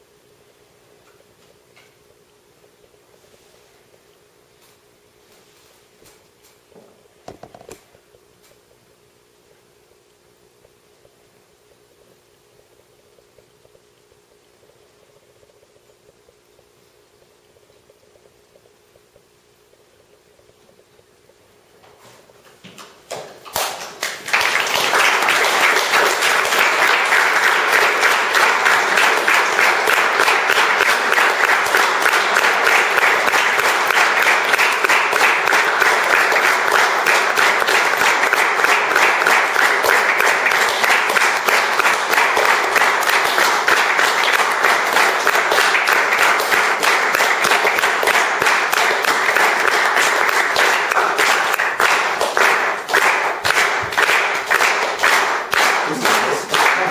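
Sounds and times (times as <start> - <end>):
audience applauding: 23.5 - 56.9.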